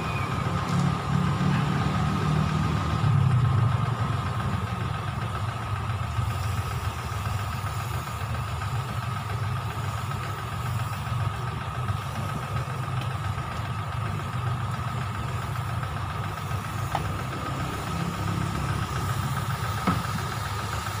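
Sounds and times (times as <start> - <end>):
engine idling: 0.0 - 21.0.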